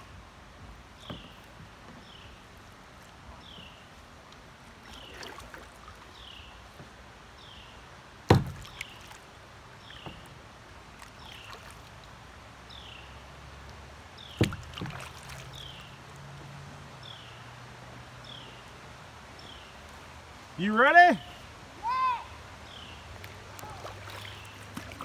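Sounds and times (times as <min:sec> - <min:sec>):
creek water: 0:00.0 - 0:25.0
paddle knocking on kayak hull: 0:01.0 - 0:02.2, 0:08.3 - 0:08.9, 0:14.3 - 0:15.4.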